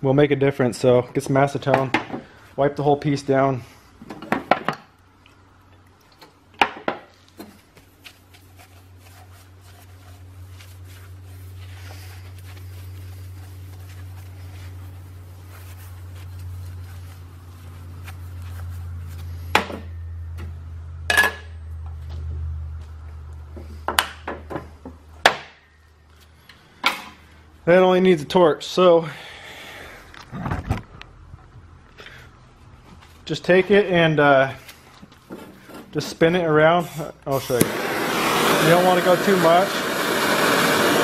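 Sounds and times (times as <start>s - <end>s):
low steady hum: 4.9s - 28.6s
towel wiping metal: 7.8s - 19.4s.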